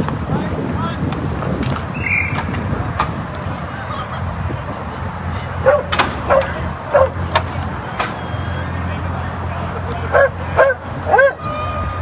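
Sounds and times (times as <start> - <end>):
dog barking: 5.6 - 7.2, 10.1 - 11.4.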